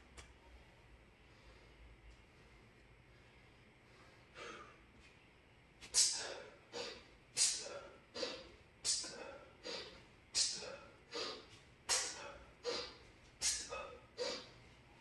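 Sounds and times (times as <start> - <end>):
man breathing softly: 0.4 - 4.9, 6.1 - 14.9
man exhaling forcefully: 6.0 - 14.5.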